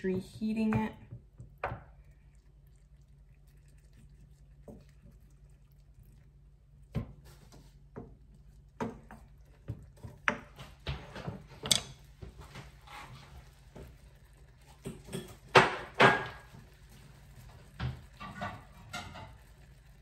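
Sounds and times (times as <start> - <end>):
utensils and cookware clinking: 10.3 - 13.5, 14.6 - 19.9.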